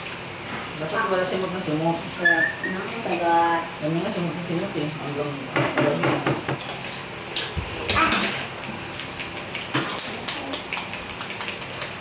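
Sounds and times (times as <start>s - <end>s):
people talking: 0.8s - 6.2s, 7.9s - 8.4s.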